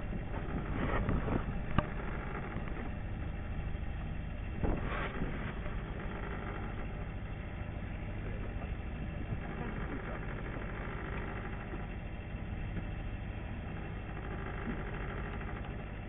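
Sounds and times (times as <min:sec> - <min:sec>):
boat engine running: 0:00.0 - 0:16.0
sea and wind noise: 0:00.0 - 0:16.0.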